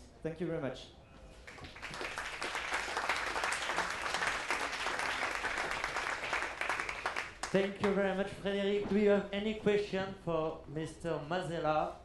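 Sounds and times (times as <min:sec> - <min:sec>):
audience applauding: 0:01.5 - 0:07.6.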